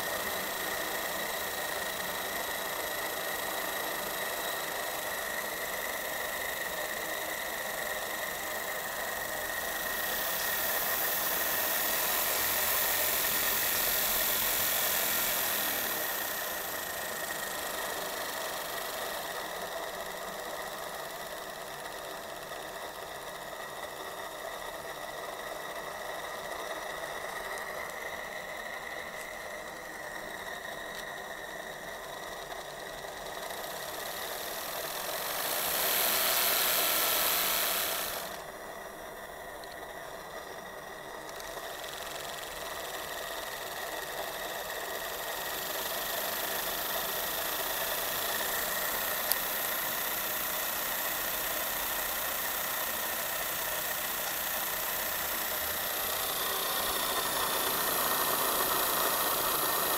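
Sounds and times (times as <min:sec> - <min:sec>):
steam hiss: 0:00.0 - 0:19.4, 0:33.6 - 0:38.6, 0:42.5 - 0:59.9
model steam engine ticking: 0:00.0 - 0:59.9.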